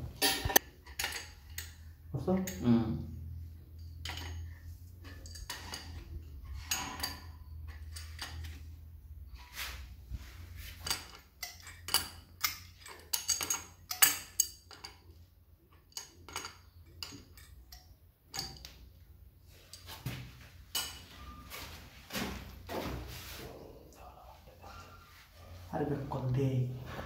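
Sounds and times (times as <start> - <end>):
spanner clinking on metal valve: 0.2 - 2.7, 3.7 - 8.5, 10.8 - 18.8, 20.7 - 21.2.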